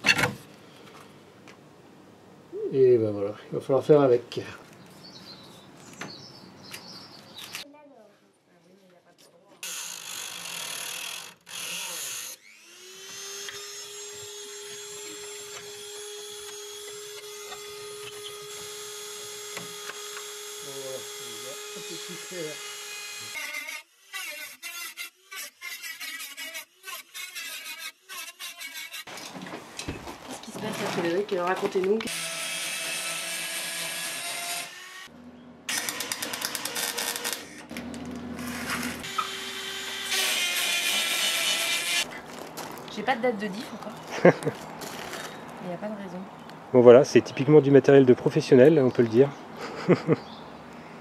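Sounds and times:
cut-off tool whine: 9.6 - 24.6, 35.7 - 42.1
cutting disc grinding metal: 35.7 - 42.1.

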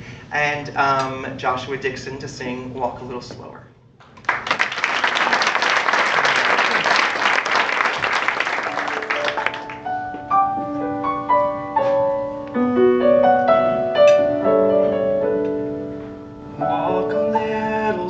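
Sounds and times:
audience applauding: 4.1 - 10.0
slow piano chords: 8.0 - 18.0.

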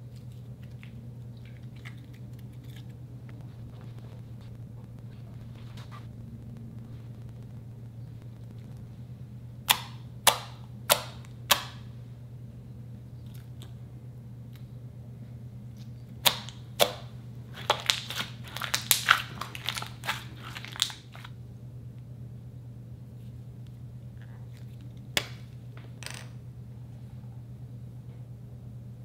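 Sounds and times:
steady low hum: 0.0 - 29.0
slime popping and crackling: 16.2 - 21.3.

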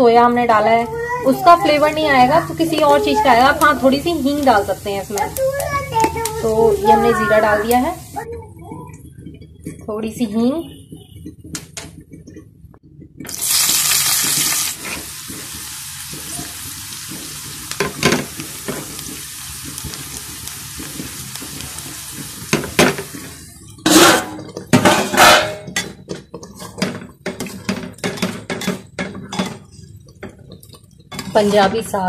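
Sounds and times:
spices sizzling in oil: 1.2 - 8.3, 13.3 - 28.2
spoon clanking and scraping on pan: 1.2 - 32.0.

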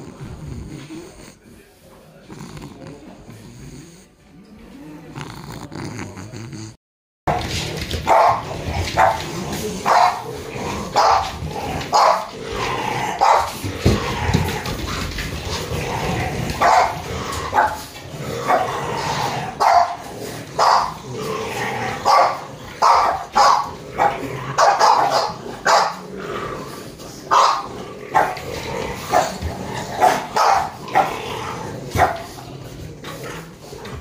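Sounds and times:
dog barking: 8.0 - 8.4, 9.0 - 9.2, 9.8 - 10.3, 10.9 - 11.3, 11.9 - 12.3, 13.2 - 13.6, 16.6 - 17.8, 19.6 - 20.0, 20.6 - 21.0, 22.0 - 26.0, 27.3 - 28.4, 30.0 - 31.2, 32.0 - 32.3.

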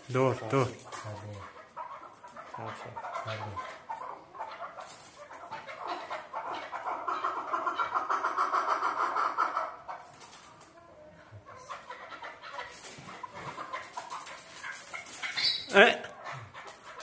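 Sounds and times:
partridges clucking: 12.2 - 15.8.

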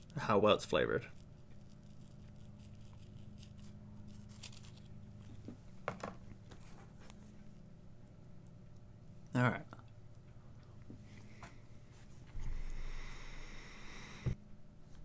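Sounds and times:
low room hum: 0.0 - 15.0.

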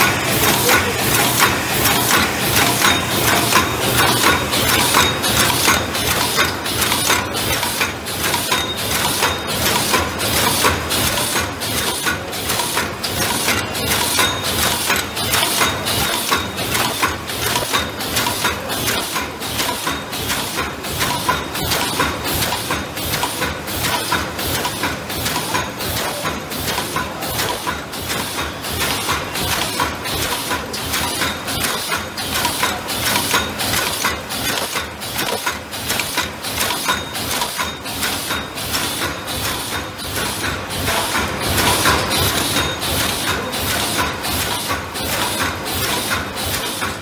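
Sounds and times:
machine clattering rhythmically: 0.0 - 47.0.

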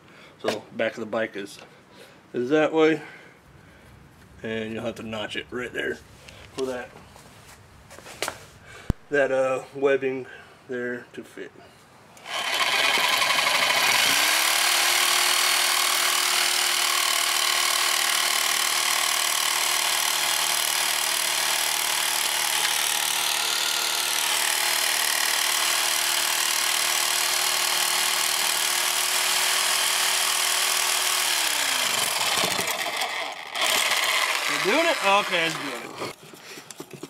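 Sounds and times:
reciprocating saw cutting metal: 12.2 - 36.2.

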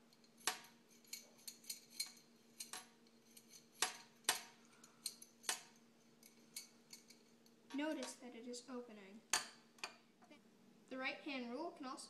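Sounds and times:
metal clamp clicking and clinking: 0.1 - 7.4.

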